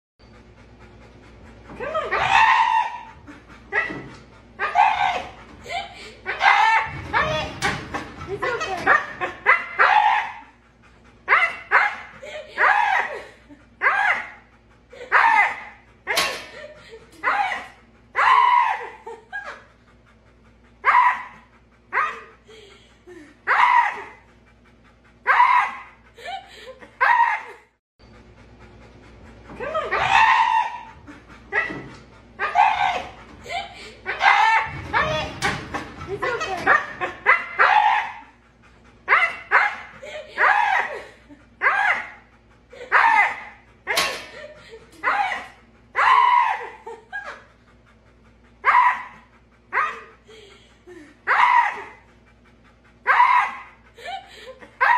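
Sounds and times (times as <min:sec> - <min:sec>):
dog screaming in yowls: 0:01.9 - 0:04.0, 0:04.6 - 0:05.4, 0:06.3 - 0:07.8, 0:08.4 - 0:10.5, 0:11.3 - 0:13.2, 0:13.8 - 0:14.4, 0:15.1 - 0:16.4, 0:17.2 - 0:19.2, 0:20.8 - 0:22.3, 0:23.5 - 0:24.2, 0:25.3 - 0:26.0, 0:27.0 - 0:27.6, 0:29.7 - 0:31.8, 0:32.4 - 0:35.6, 0:36.2 - 0:38.4, 0:39.1 - 0:41.0, 0:41.6 - 0:42.2, 0:42.8 - 0:44.4, 0:45.0 - 0:47.0, 0:48.6 - 0:50.1, 0:51.3 - 0:52.1, 0:53.0 - 0:53.8.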